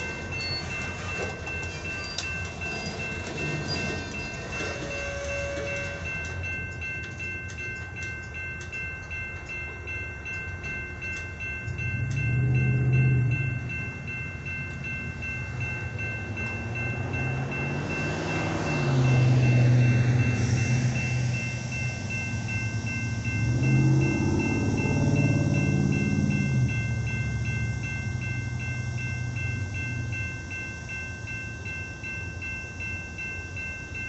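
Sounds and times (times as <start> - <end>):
wheels clicking over rail joints: 0.0 - 30.7
freight train rolling past: 0.0 - 34.0
low hum: 11.6 - 18.0
steady high whine: 19.0 - 34.0.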